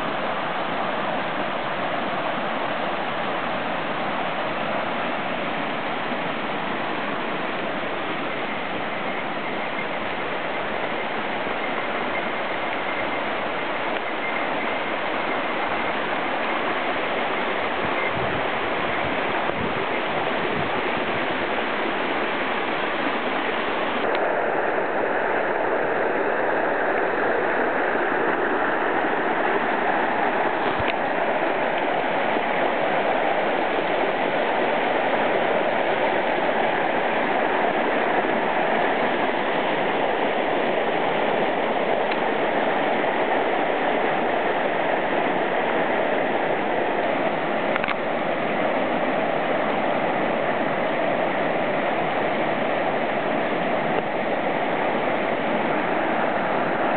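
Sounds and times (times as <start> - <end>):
stream rushing over rocks: 0.0 - 56.9
small click: 47.7 - 48.0.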